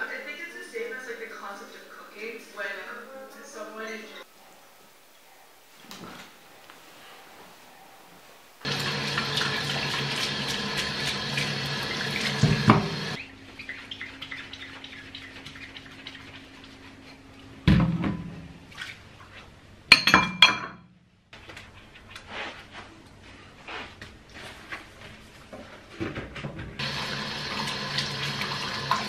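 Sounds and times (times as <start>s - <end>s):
loud clatter of dishes: 19.9s - 20.8s
ceramic bowls clinking in sink: 19.9s - 20.9s.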